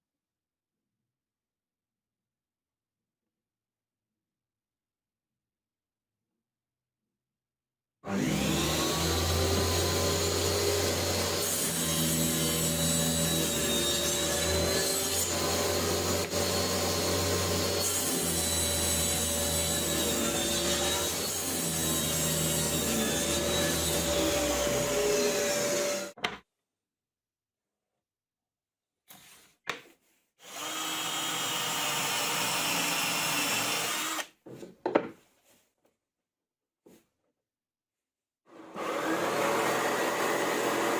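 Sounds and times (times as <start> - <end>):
table saw motor hum: 38.5 - 40.9.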